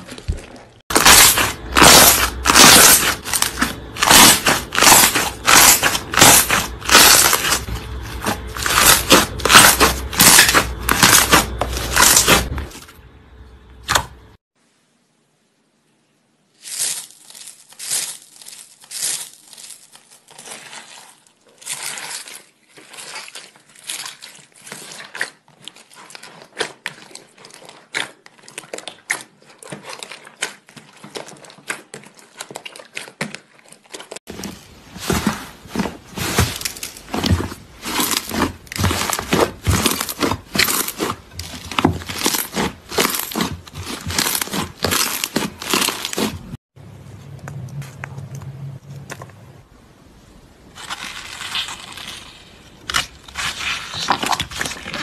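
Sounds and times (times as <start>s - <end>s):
slime crackling and popping: 0.9s - 12.5s, 16.6s - 34.2s, 34.8s - 46.6s
hands squeezing slime: 16.6s - 46.5s.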